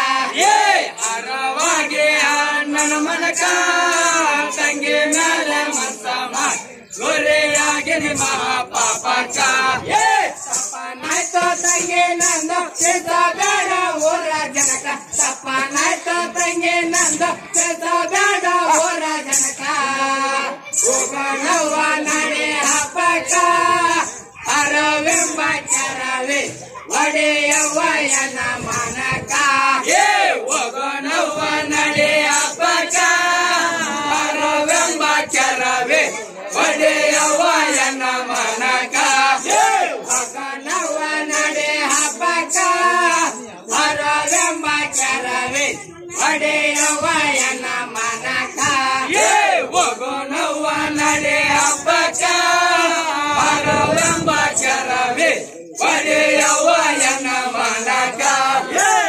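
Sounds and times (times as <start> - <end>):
men singing in chorus: 0.0 - 59.0.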